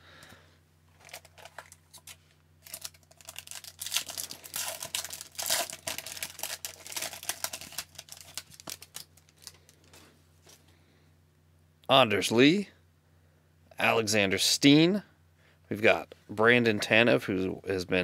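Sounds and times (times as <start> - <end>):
foil pack torn and crinkled: 1.0 - 9.9.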